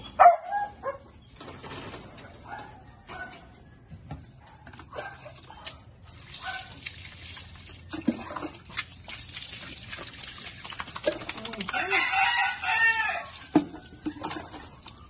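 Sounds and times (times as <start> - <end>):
water running and splashing: 6.0 - 15.0.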